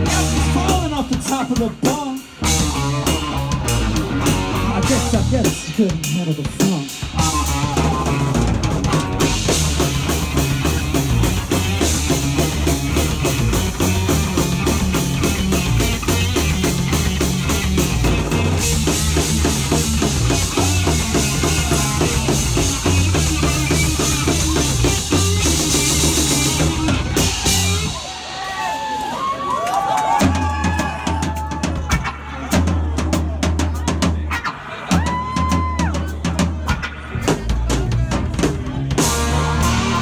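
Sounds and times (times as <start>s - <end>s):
electric guitar: 0.0s - 28.3s, 38.4s - 40.0s
bass guitar: 0.0s - 28.8s, 30.1s - 40.0s
drum kit with cymbals: 0.0s - 29.3s, 30.1s - 40.0s.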